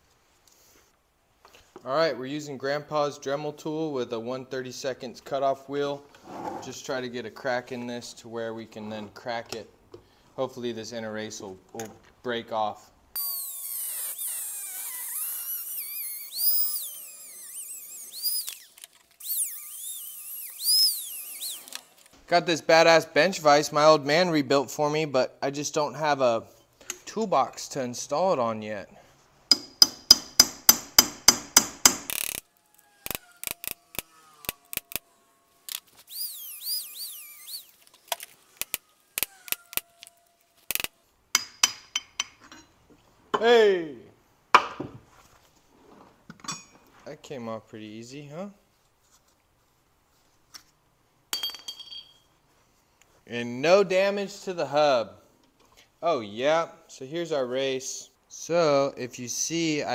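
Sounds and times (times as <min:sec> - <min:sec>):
cutoff wheel whine: 0:13.2 - 0:22.1, 0:33.4 - 0:39.3
rotary tool grinding steel: 0:13.2 - 0:22.2, 0:32.1 - 0:41.0
hammer striking metal punch: 0:29.5 - 0:32.1, 0:41.4 - 0:42.4
sharp metal taps: 0:29.5 - 0:32.2.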